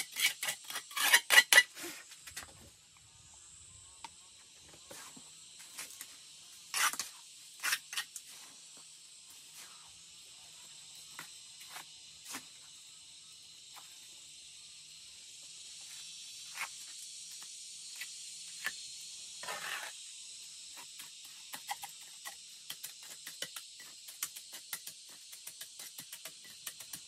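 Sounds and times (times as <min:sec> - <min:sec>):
high-pitched insect chorus: 0:00.0 - 0:27.0
rustle: 0:04.6 - 0:12.8, 0:19.4 - 0:20.1.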